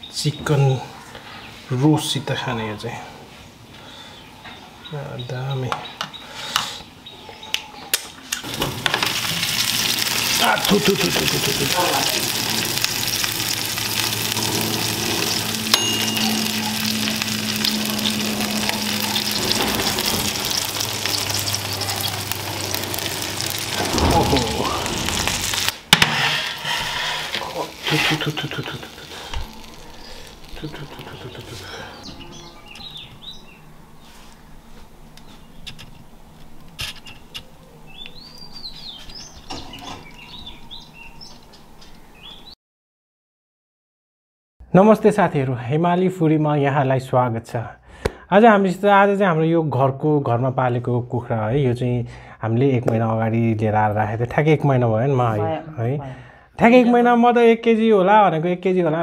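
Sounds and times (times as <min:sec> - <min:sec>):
small birds chirping: 0:03.4 - 0:08.2, 0:09.2 - 0:23.7, 0:27.4 - 0:42.6
chickens sizzling: 0:08.3 - 0:36.4, 0:37.0 - 0:41.6
oven low hum: 0:08.4 - 0:42.0.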